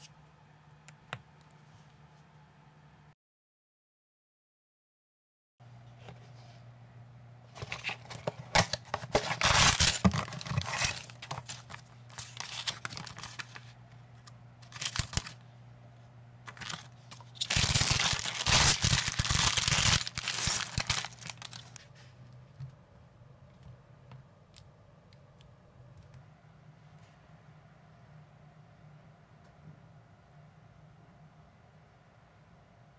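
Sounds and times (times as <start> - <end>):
cardboard and paper tearing: 7.6 - 13.6, 14.6 - 15.4, 16.5 - 21.8.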